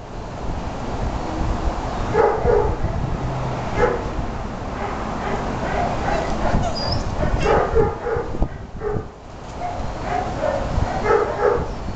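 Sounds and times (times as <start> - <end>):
dogs barking and yipping: 2.1 - 3.1, 3.7 - 4.1, 4.7 - 11.8.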